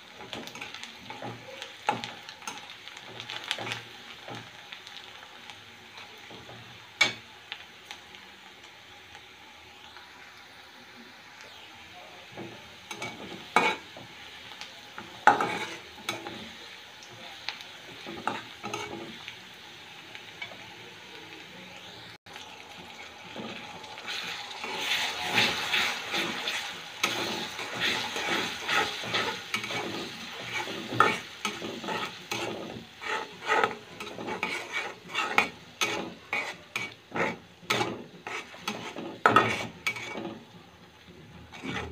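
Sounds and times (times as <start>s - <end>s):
onions sizzling in oil: 0.0s - 41.9s
metal spatula scraping a pan: 12.4s - 14.1s, 15.0s - 16.6s, 17.8s - 19.3s, 23.0s - 40.5s, 41.4s - 41.9s.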